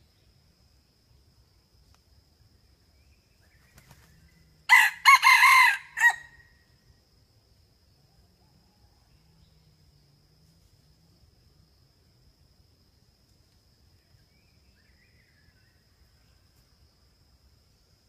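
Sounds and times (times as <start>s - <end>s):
rooster crowing: 4.7s - 6.5s.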